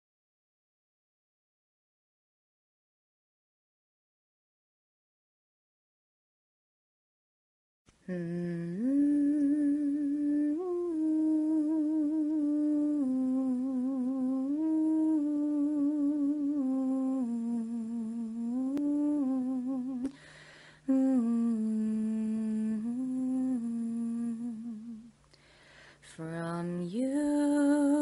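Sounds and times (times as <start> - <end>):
woman humming a slow melody: 8.0 - 20.2, 20.8 - 25.2, 26.0 - 28.0.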